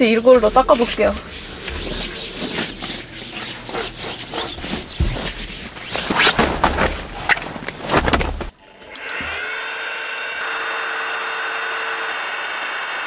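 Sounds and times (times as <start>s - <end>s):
hands rubbing on groundsheet: 0.3s - 6.4s
fabric mattress unfolding rustles: 0.4s - 8.6s.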